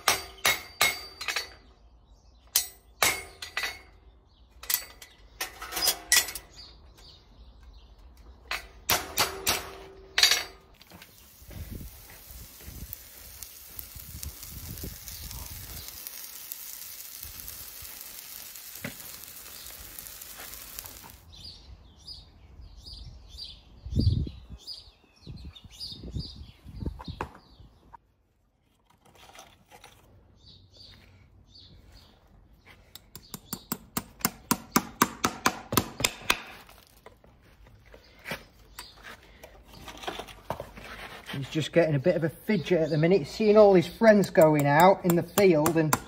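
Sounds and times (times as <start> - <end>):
small birds chirping: 1.5 - 8.9, 10.8 - 28.0, 30.2 - 35.0, 37.4 - 40.4, 41.3 - 46.0
hoof sizzling and hissing: 10.8 - 21.3.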